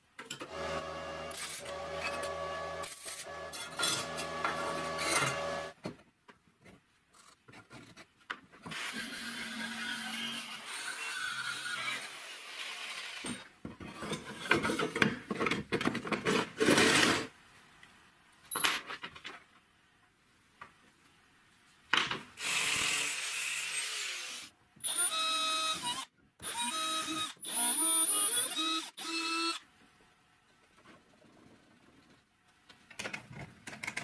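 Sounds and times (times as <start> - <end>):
small power tool whining: 24.8 - 29.6.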